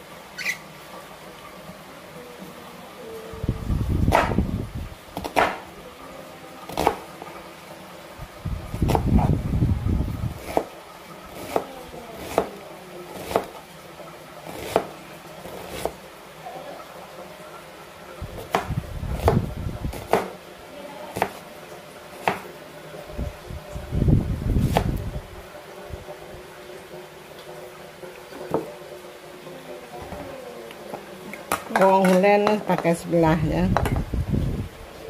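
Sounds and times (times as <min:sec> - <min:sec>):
knife chopping on wooden board: 0:04.1 - 0:04.4, 0:05.2 - 0:05.7, 0:13.2 - 0:13.5, 0:14.6 - 0:14.9, 0:18.4 - 0:20.4, 0:22.2 - 0:22.5.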